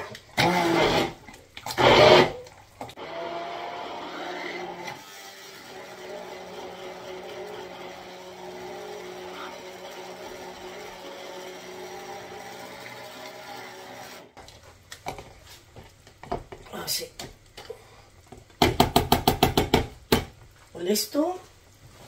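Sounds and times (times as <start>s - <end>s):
blender motor running: 0.4s - 2.4s, 3.0s - 14.4s.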